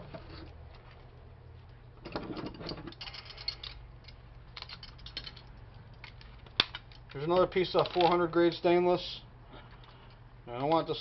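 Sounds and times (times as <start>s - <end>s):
small parts clicking and rattling: 2.0s - 8.4s.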